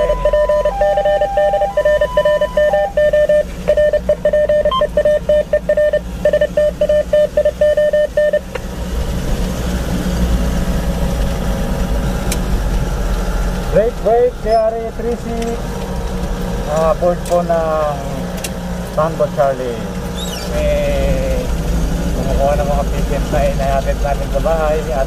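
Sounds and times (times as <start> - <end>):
ambulance siren beeping: 0.0 - 8.5
engine and road rumble: 0.0 - 25.0.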